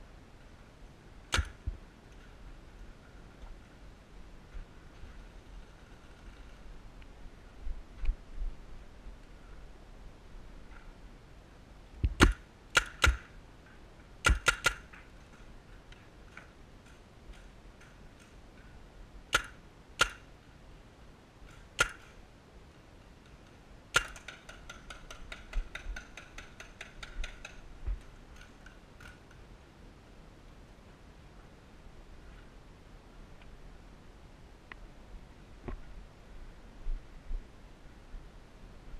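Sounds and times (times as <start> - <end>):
paintball gun shots: 1.3 - 1.7, 12.1 - 13.3, 14.2 - 14.9, 19.3 - 20.3, 23.9 - 26.1.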